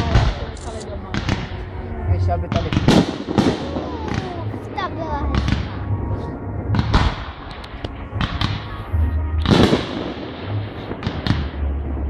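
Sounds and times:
low rumble: 0.0s - 12.0s
fireworks bangs: 2.4s - 12.0s.

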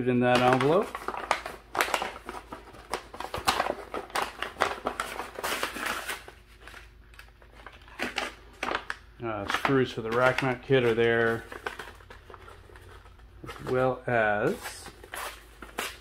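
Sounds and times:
paper envelope rustling and crinkling: 0.3s - 16.0s.

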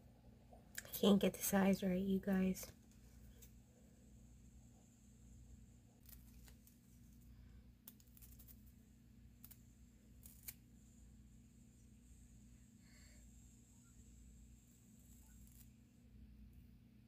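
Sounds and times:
steady low hum: 0.0s - 17.0s
faint clicks of peeling nail strips: 7.8s - 8.7s, 9.4s - 9.6s, 10.2s - 10.6s.

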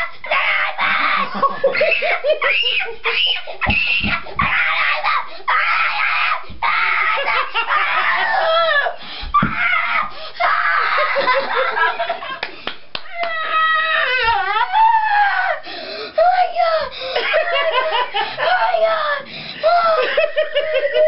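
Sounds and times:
dull thumps: 3.6s - 4.8s, 9.2s - 9.7s
boy screaming with excitement: 13.0s - 15.6s.

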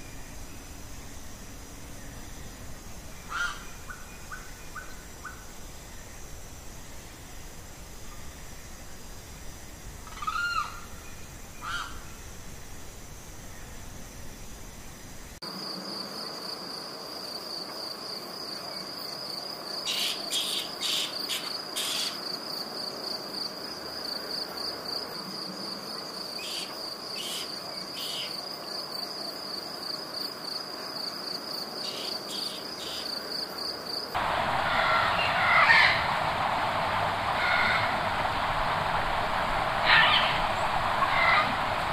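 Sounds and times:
insect trill: 0.0s - 41.9s
rough rushing noise: 34.2s - 41.9s.

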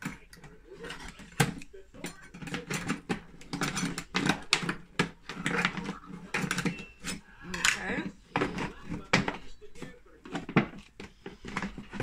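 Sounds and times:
scissors cutting plastic bottle: 0.0s - 7.2s
plastic crackling: 0.0s - 12.0s.

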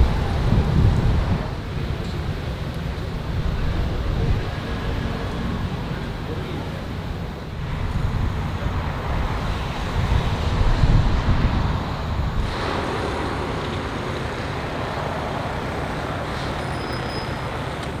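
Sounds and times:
wind buffeting microphone: 0.0s - 6.3s, 6.9s - 16.7s
traffic: 0.0s - 18.0s
water noise: 0.0s - 18.0s.

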